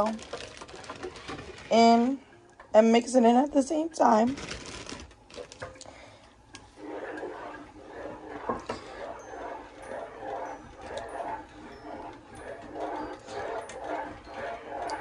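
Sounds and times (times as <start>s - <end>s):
spoon scraping and sloshing sauce: 6.6s - 15.0s.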